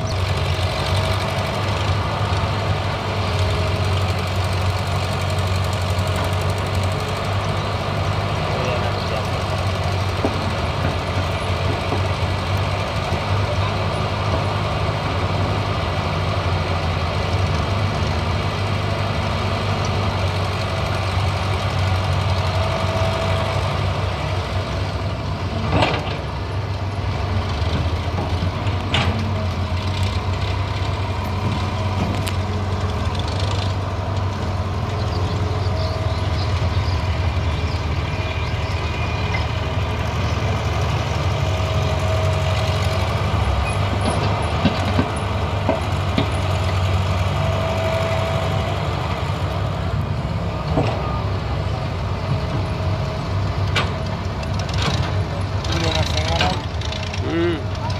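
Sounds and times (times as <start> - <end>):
excavator diesel engine working: 0.0 - 57.9
tractor idling: 0.0 - 57.9.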